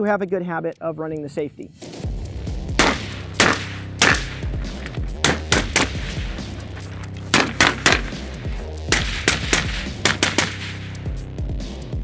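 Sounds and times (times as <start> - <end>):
background music: 0.0 - 12.0
rifle gunshots: 2.8 - 11.0.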